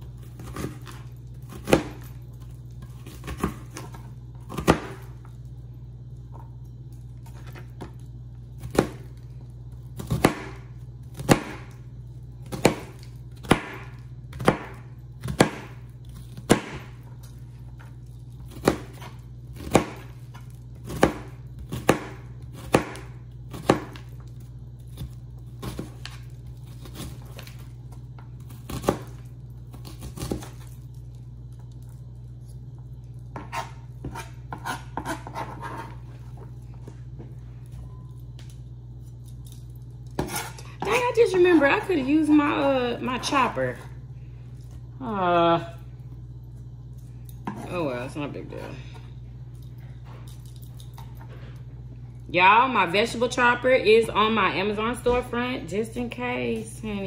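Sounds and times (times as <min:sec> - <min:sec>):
low hum: 0:00.0 - 0:57.0
knife chopping on cutting board: 0:00.4 - 0:02.1, 0:04.5 - 0:05.0, 0:10.0 - 0:10.6, 0:11.2 - 0:11.8, 0:12.4 - 0:15.8, 0:16.4 - 0:16.9, 0:18.5 - 0:20.1, 0:20.8 - 0:24.0, 0:33.3 - 0:36.0, 0:40.2 - 0:41.0.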